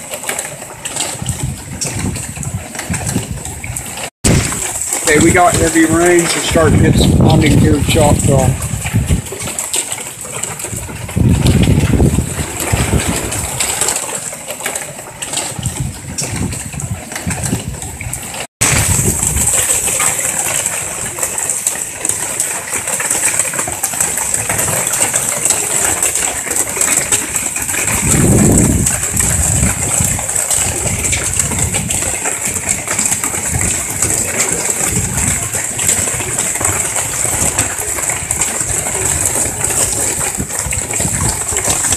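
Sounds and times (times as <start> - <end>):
heavy rain pouring: 0.0 - 41.9
wind buffeting microphone: 0.0 - 41.9.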